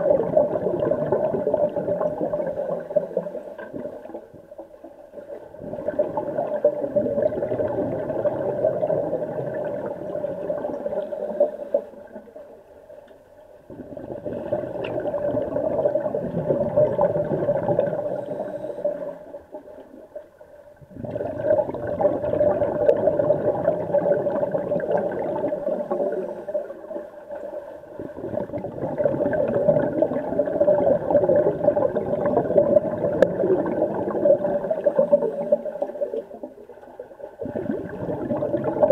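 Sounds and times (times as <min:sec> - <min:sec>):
underwater regulator bubbling: 0:00.0 - 0:04.3, 0:05.2 - 0:12.3, 0:13.7 - 0:19.9, 0:20.8 - 0:38.9.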